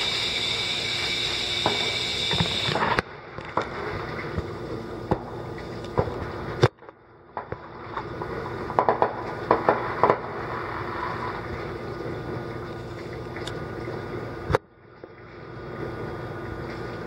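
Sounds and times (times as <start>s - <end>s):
steady background noise: 0.0s - 17.0s
firework pops and crackles: 5.1s - 10.8s.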